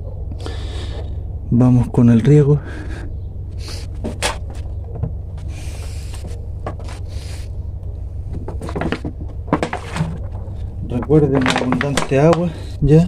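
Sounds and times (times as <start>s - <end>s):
steady low hum: 0.0s - 13.0s
handling clicks and rustles: 3.6s - 12.8s.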